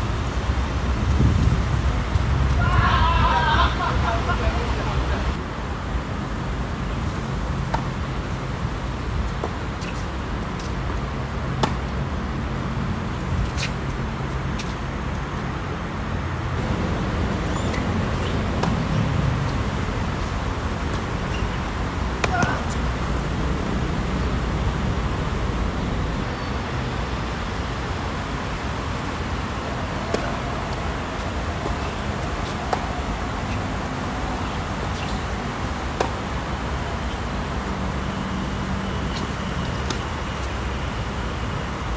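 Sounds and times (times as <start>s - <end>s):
low hum of road traffic: 0.0s - 41.9s
tennis ball hit by rackets: 11.6s - 11.9s, 22.2s - 22.8s, 30.1s - 30.4s
ball bouncing on hard court: 17.6s - 19.0s, 22.2s - 22.8s.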